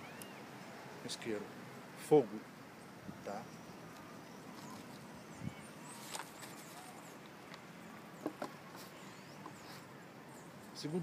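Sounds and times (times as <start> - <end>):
faint bird chirps: 0.0 - 1.0, 2.8 - 11.0.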